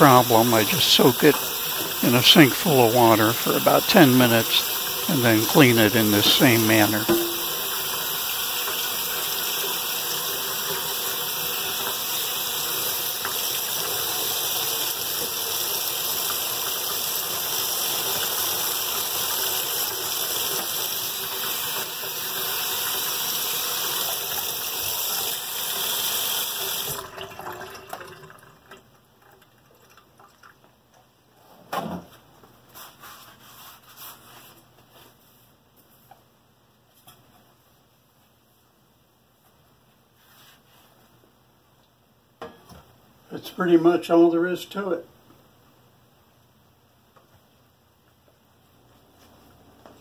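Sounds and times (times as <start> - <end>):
faucet running into sink: 0.0 - 30.6.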